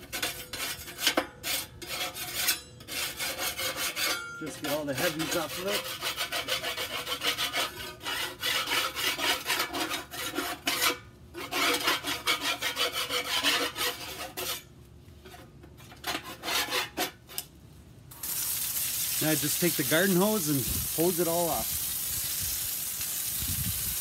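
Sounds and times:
putty knife scraping metal plate: 0.0s - 17.5s.

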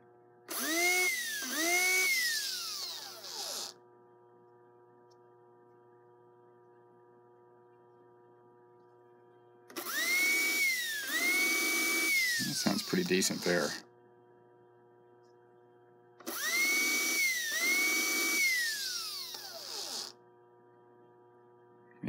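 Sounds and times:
small electric motor whining: 0.5s - 3.8s, 9.7s - 13.9s, 16.2s - 20.2s.

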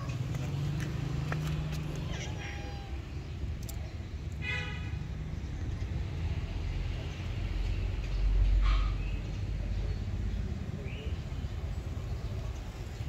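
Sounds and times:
cat meowing: 2.0s - 3.1s.

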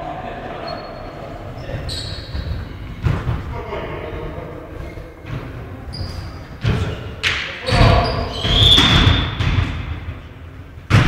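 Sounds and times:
volleyball thudding on gym floor: 6.6s - 10.1s.

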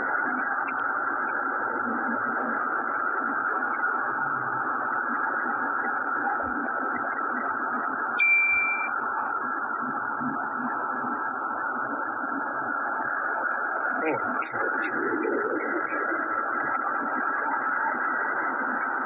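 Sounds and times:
short high beep: 8.2s - 8.9s.

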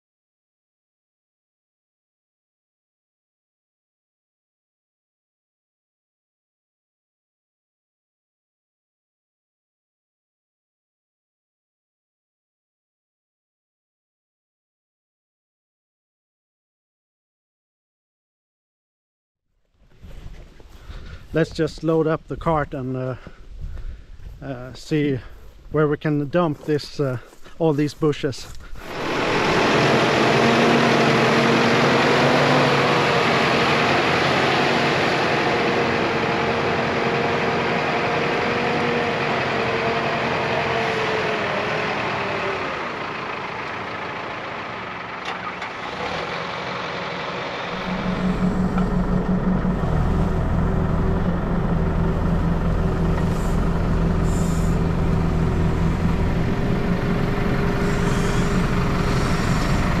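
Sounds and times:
diesel engine running: 19.9s - 60.0s
steady whine: 28.8s - 32.1s, 47.3s - 60.0s.

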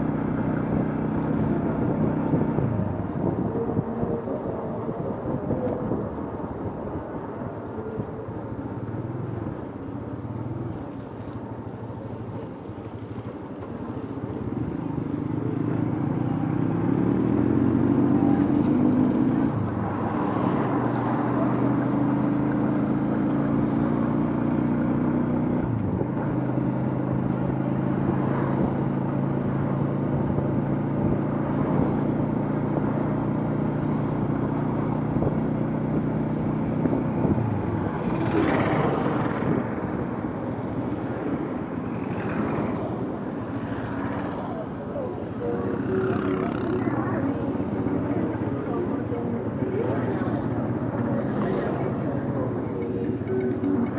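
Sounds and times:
motorcycle engine: 14.2s - 53.9s.

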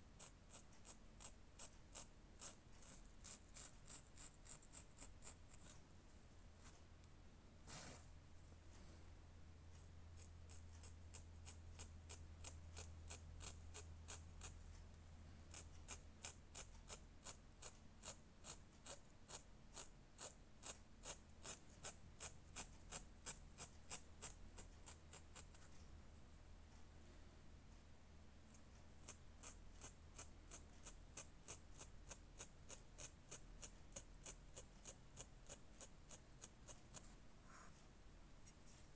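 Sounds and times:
faint low hum: 0.0s - 38.9s
marker scrubbing on fabric: 0.2s - 5.8s, 7.6s - 8.2s, 15.5s - 25.8s, 29.0s - 37.8s.

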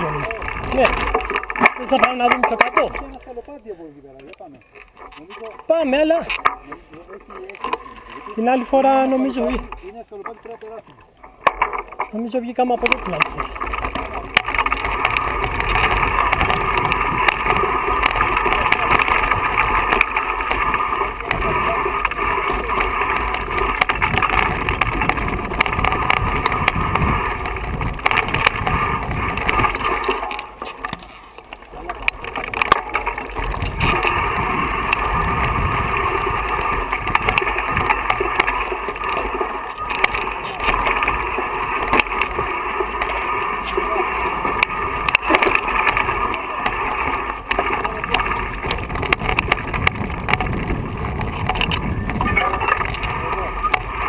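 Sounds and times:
bike rattling over rough ground: 0.0s - 54.0s
bike tyres clattering over stones: 0.0s - 54.0s
wind rushing on microphone: 23.8s - 29.9s, 33.4s - 38.0s, 48.0s - 54.0s.

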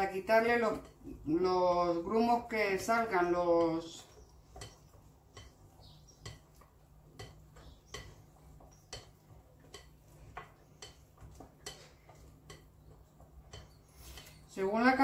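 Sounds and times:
spatula stirring batter in glass bowl: 0.0s - 15.0s.

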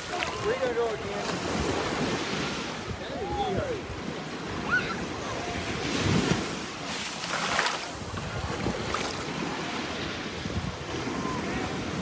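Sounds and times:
small waves breaking on beach: 0.0s - 12.0s
wind rumbling on microphone: 0.0s - 12.0s.

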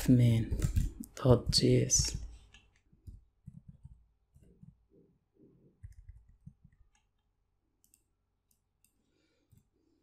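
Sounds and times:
keyboard typing: 0.5s - 4.8s, 5.8s - 9.7s.

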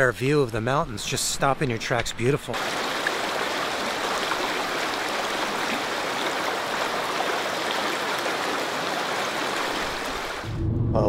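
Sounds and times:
river rushing: 2.5s - 10.5s.

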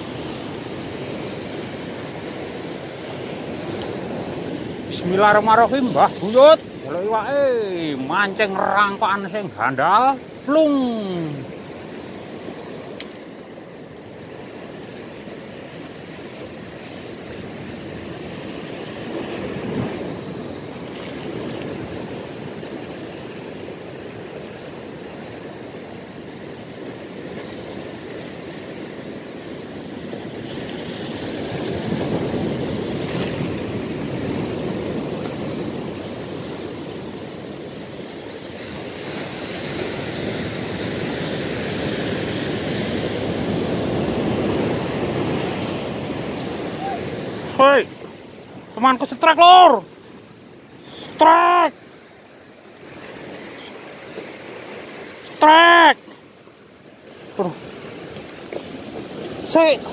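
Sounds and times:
sea surf breaking on rocks: 0.0s - 59.9s.

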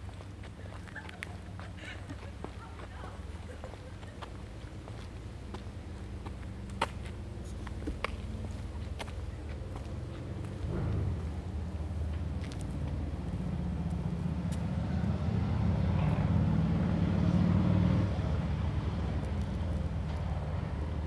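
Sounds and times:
passing vehicle engine hum: 0.0s - 21.0s.

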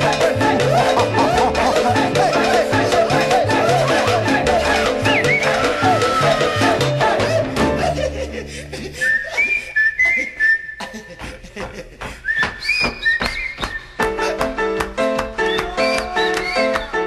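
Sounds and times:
salsa band playing: 0.0s - 7.9s, 14.1s - 17.0s
percussion strikes: 0.0s - 8.0s
high whistle-like melody: 4.7s - 6.6s, 12.3s - 14.0s, 15.4s - 17.0s.

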